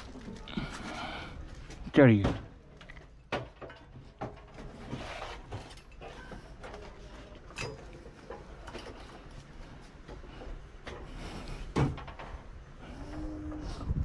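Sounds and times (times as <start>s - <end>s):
knocks and scrapes of heavy unit: 3.2s - 9.3s, 10.1s - 14.0s.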